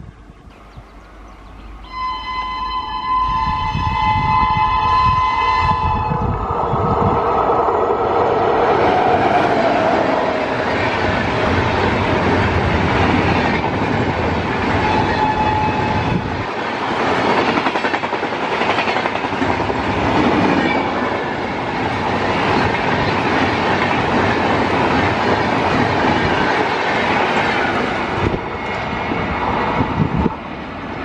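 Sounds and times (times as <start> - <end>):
train passing at speed: 0.0 - 31.0
wheels clickety-clack on rail joints: 9.0 - 31.0.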